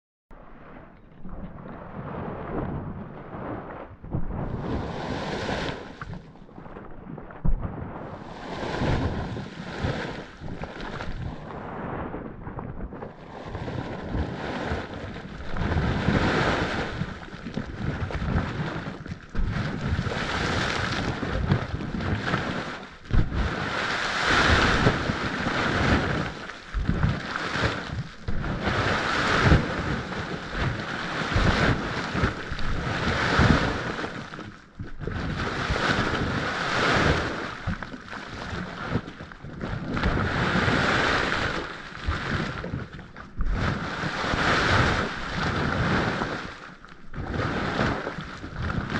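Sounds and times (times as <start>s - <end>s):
low rumbling thumps: 1.0s - 23.8s, 24.6s - 32.9s.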